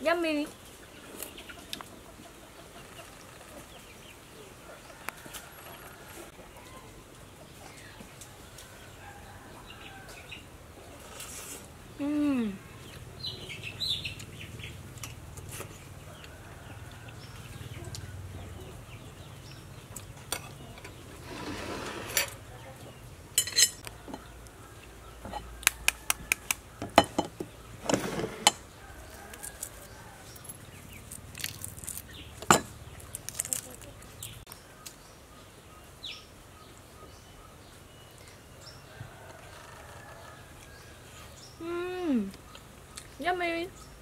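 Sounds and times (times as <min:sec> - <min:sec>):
small birds chirping: 0:09.6 - 0:21.3, 0:28.6 - 0:44.0.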